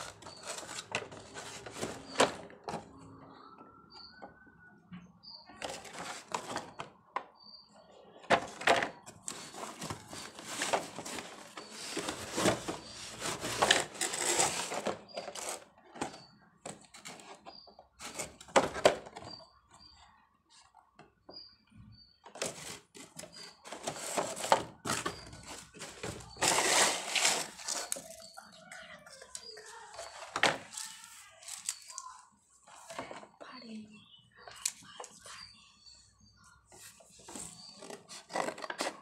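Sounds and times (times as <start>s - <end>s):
plastic packaging crinkling: 25.5s - 28.3s.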